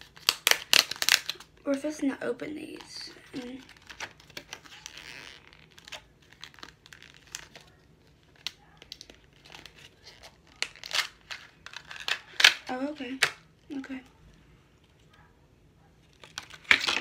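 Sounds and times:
packaging clicks and crackles: 0:00.0 - 0:01.6, 0:02.8 - 0:14.0, 0:16.0 - 0:17.0
packaging rustling: 0:00.0 - 0:01.7, 0:02.7 - 0:12.8.

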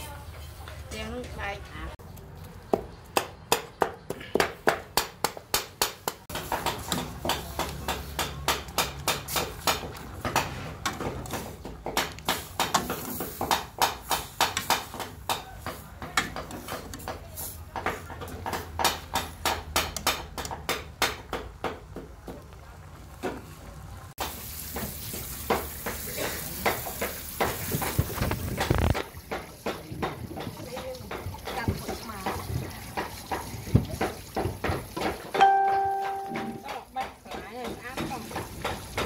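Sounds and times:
knives chopping on a board: 0:02.7 - 0:22.1, 0:36.3 - 0:39.0.

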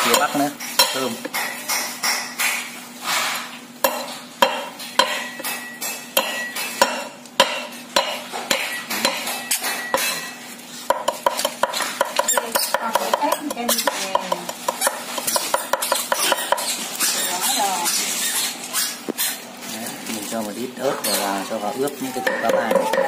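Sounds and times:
cleaver chopping on wooden board: 0:22.2 - 0:23.0.

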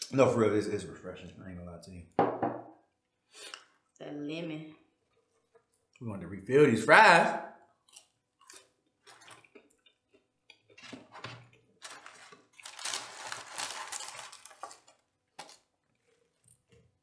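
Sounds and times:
person chewing food: 0:05.0 - 0:06.0, 0:07.7 - 0:17.0.

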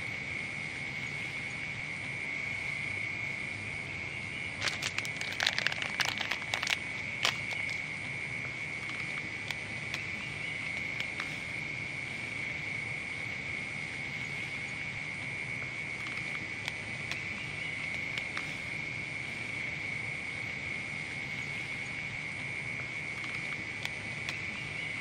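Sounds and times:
crickets trilling: 0:00.0 - 0:25.0
faint clicks: 0:16.0 - 0:17.3, 0:23.1 - 0:24.5.

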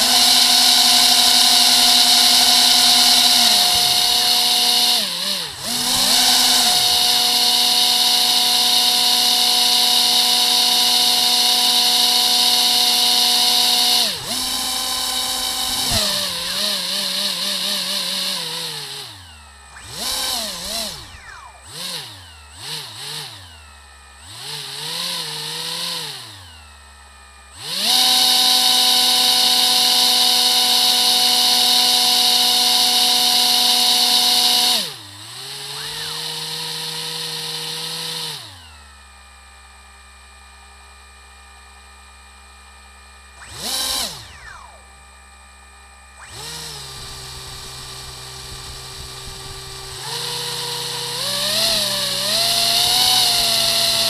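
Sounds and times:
propeller motors whining: 0:00.0 - 0:27.0, 0:27.6 - 0:38.9, 0:43.4 - 0:45.0, 0:46.2 - 0:54.0.

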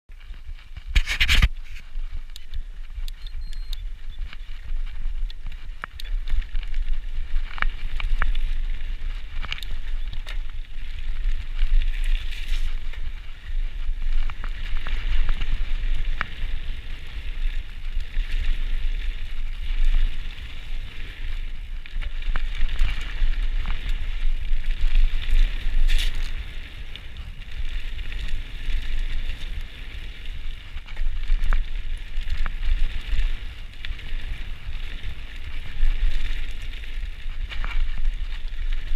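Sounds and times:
bike tyres crunching on gravel: 0:00.1 - 0:38.9.

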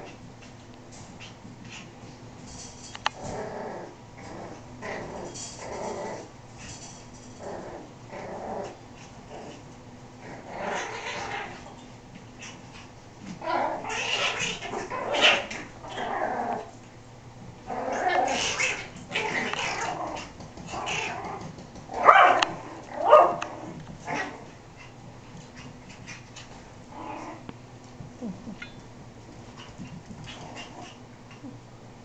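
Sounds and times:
puppies growling and yipping: 0:03.2 - 0:06.3, 0:07.4 - 0:11.7, 0:12.4 - 0:16.8, 0:17.7 - 0:25.0, 0:25.6 - 0:27.5, 0:30.2 - 0:31.5.

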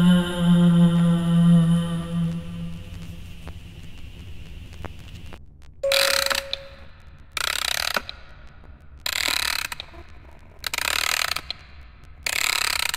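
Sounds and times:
short steady tone: 0:05.8 - 0:06.8
rasping ratchet-like mechanical noise: 0:07.4 - 0:08.1, 0:09.1 - 0:10.0, 0:10.6 - 0:12.9.

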